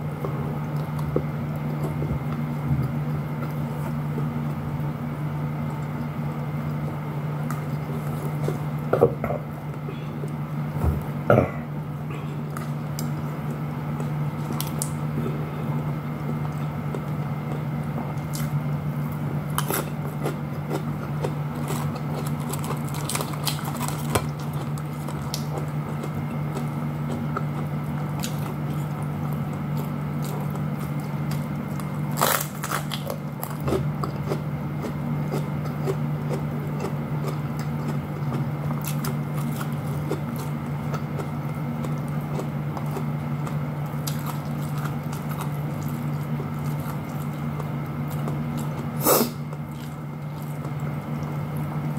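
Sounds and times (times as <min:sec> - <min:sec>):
chewing and crunching: 0:00.0 - 0:10.5, 0:12.1 - 0:51.9
steady low hum: 0:00.0 - 0:51.9.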